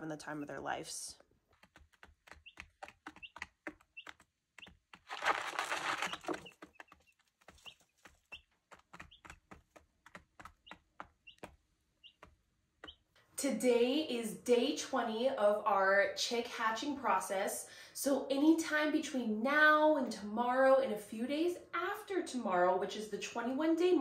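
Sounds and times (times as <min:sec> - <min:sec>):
chicks pecking and scratching: 0:01.5 - 0:13.1
chicks cheeping: 0:02.3 - 0:09.8, 0:10.4 - 0:13.1.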